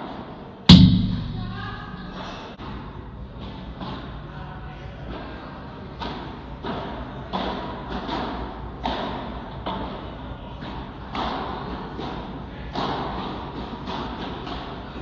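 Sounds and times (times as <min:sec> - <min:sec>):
padel racket hits: 0:00.7 - 0:02.4.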